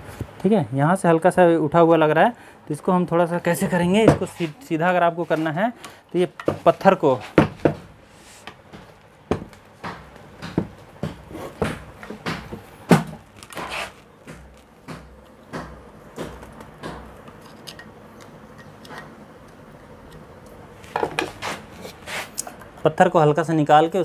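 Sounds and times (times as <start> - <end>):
screwdriver tapping and scraping metal: 17.2 - 20.2.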